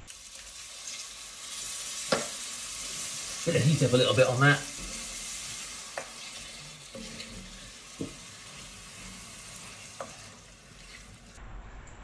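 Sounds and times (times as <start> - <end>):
vegetables sizzling in a pan: 0.0 - 11.4
wooden spoon knocking on pan: 2.1 - 2.4, 5.9 - 6.2, 8.0 - 8.4.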